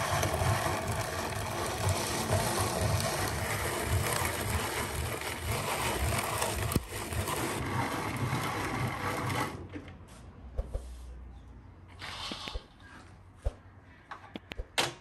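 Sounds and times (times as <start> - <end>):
drum grater grinding nuts: 0.0 - 9.6.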